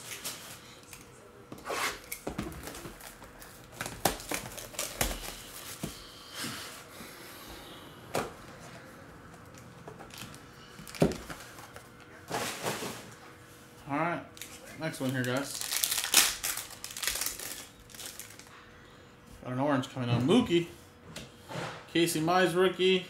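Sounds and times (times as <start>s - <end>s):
packaging rustling: 2.0s - 6.1s, 10.0s - 12.9s, 14.4s - 18.5s.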